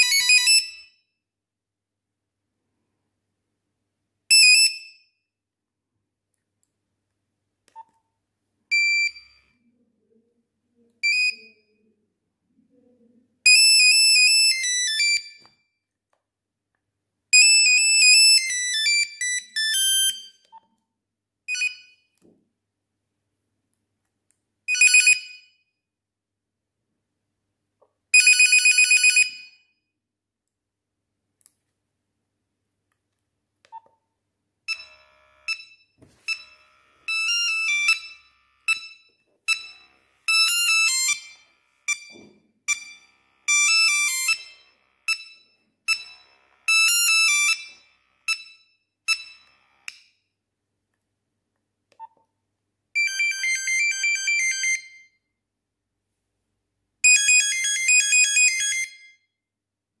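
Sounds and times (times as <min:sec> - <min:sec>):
monophonic phone ringtones: 0:00.0 - 0:00.9, 0:13.5 - 0:15.5, 0:21.5 - 0:22.1, 0:24.7 - 0:25.6, 0:28.2 - 0:29.6, 0:34.7 - 0:49.9, 0:53.0 - 0:55.2, 0:57.0 - 0:59.1.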